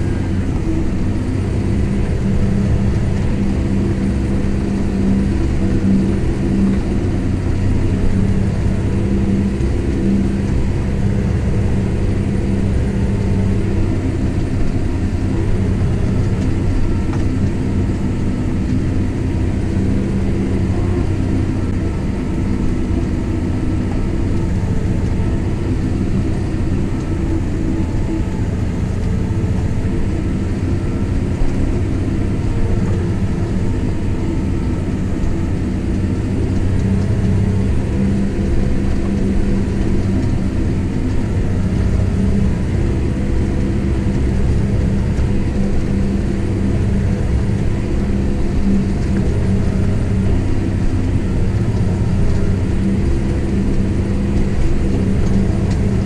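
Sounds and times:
tractor diesel engine humming: 0:00.0 - 0:56.0.

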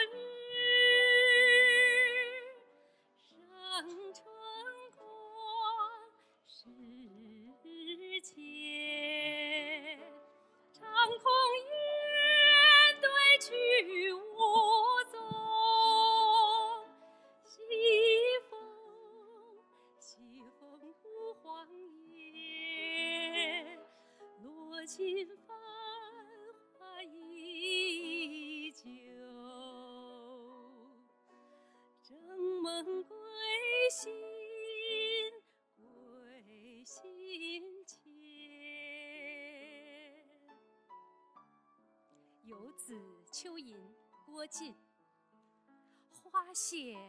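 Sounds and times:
woman singing with vibrato: 0:00.0 - 0:02.6, 0:10.8 - 0:16.8, 0:17.6 - 0:19.5, 0:24.4 - 0:30.8
piano accompaniment: 0:07.5 - 0:31.6.

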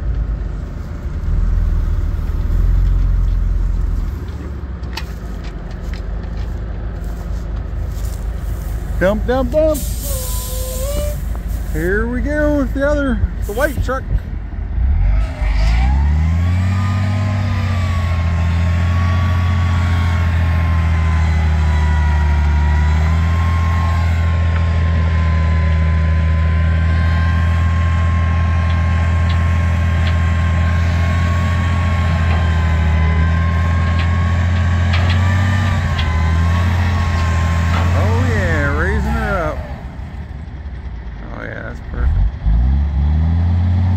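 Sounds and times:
truck engine revving: 0:00.0 - 0:43.9
hydraulic hoist whine: 0:08.4 - 0:11.8, 0:15.0 - 0:40.9.

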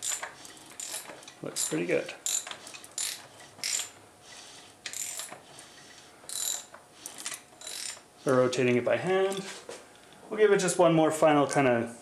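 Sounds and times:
cam chains clinking and rattling: 0:00.0 - 0:04.0, 0:04.9 - 0:05.4, 0:06.3 - 0:08.0.

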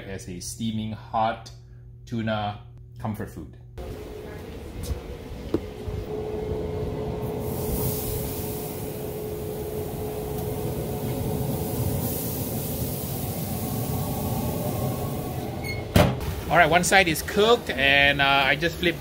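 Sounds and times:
low rumble: 0:03.6 - 0:15.8.

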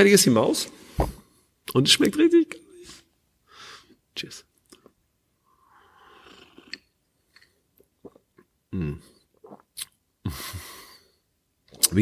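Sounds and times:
person sipping a drink: 0:04.8 - 0:10.0
swallowing and lip clicks: 0:06.2 - 0:08.6, 0:09.3 - 0:10.0.

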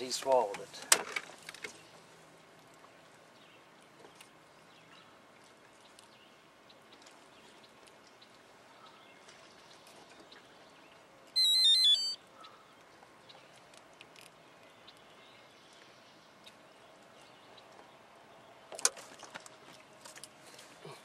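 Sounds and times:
high electronic beeps: 0:11.4 - 0:12.2.

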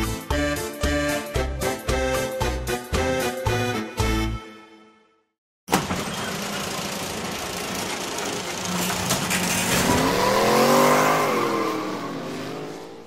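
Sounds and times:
car engine revving: 0:09.4 - 0:13.0.

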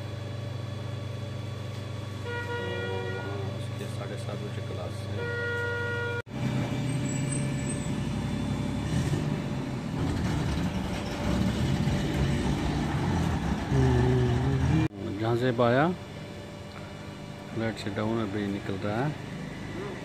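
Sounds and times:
vehicle engine running: 0:06.3 - 0:15.0.

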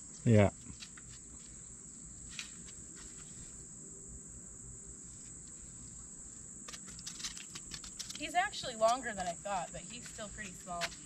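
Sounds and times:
high-pitched insect chorus: 0:00.0 - 0:11.0.

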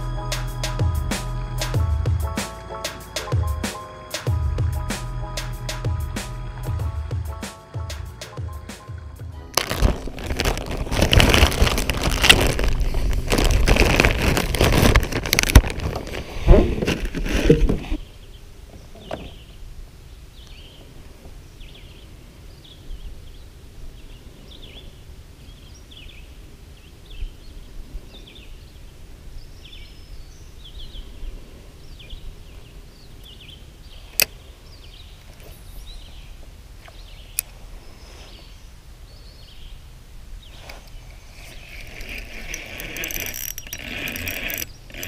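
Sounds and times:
steady low rumble: 0:04.3 - 0:16.8.

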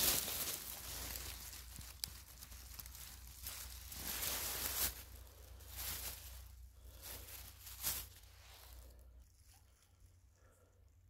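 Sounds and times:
footsteps rustling on forest floor: 0:00.0 - 0:10.0.

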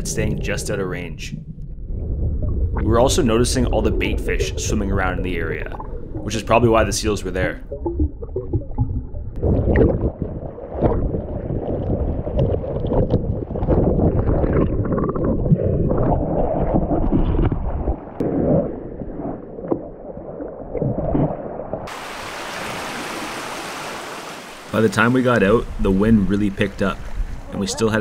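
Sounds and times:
underwater surging and bubbling: 0:00.0 - 0:28.0
wind and surf hiss: 0:21.9 - 0:28.0.

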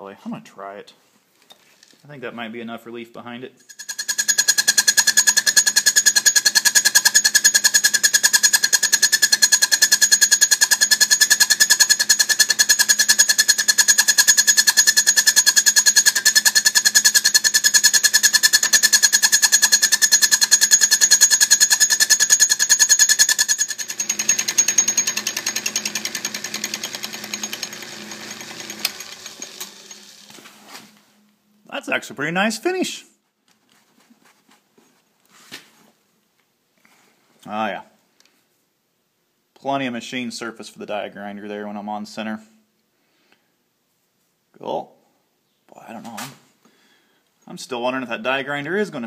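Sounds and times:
lathe cutter clattering with high ring: 0:03.7 - 0:30.2
lathe low hum: 0:03.8 - 0:31.0.

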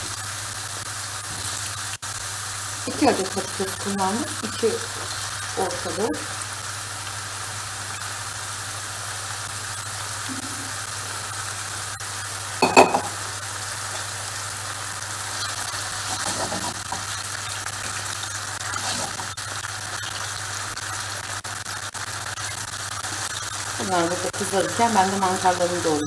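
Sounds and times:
potatoes sizzling in oil: 0:00.0 - 0:26.0
utensil stirring potatoes: 0:15.2 - 0:19.4.

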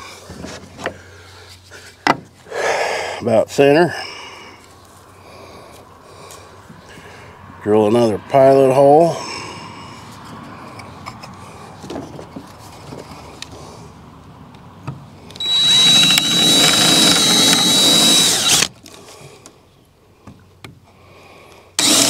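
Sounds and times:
cordless drill whining: 0:15.3 - 0:18.8, 0:21.8 - 0:22.0.

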